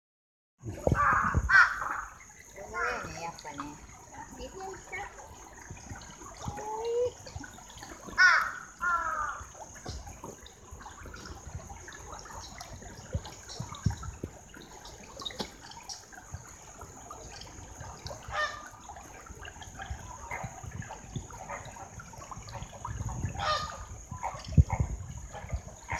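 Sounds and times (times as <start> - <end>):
stream trickling over stones: 0.6 - 25.9.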